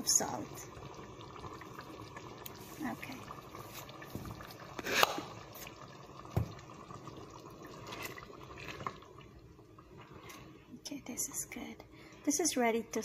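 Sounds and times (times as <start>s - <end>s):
sauce simmering and bubbling: 0.0s - 12.3s
spatula stirring and scraping: 7.8s - 9.0s.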